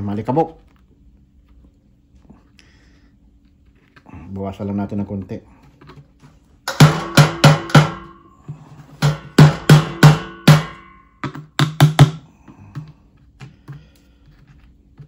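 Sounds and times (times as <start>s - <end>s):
filter knocking on metal drum: 6.7s - 8.1s.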